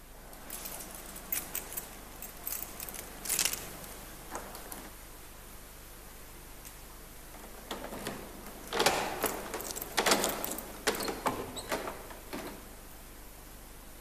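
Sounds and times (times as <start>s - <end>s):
keys jangling: 0.3s - 3.9s, 8.7s - 11.1s.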